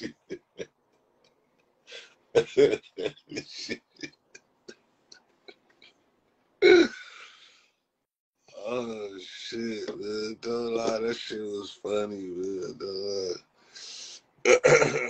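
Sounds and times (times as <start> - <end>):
man laughing hard: 2.4 - 4.1.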